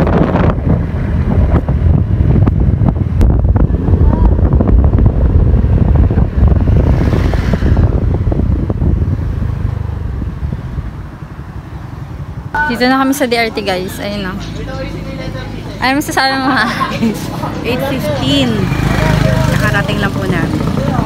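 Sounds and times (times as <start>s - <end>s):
wind buffeting microphone: 0.0s - 12.4s
vehicle rumble: 0.0s - 21.0s.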